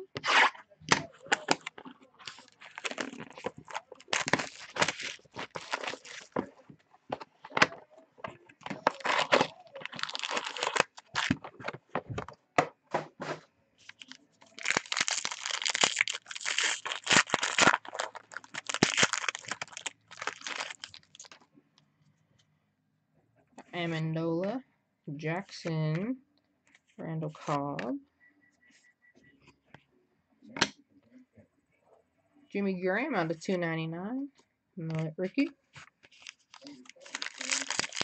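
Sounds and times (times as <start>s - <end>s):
plastic wrap and cardboard crackling: 0.3s - 7.8s, 8.6s - 12.3s, 13.8s - 21.4s, 36.0s - 38.0s
foil pack crinkling and tearing: 2.3s - 6.4s, 8.7s - 11.4s, 13.8s - 21.4s, 36.1s - 38.0s.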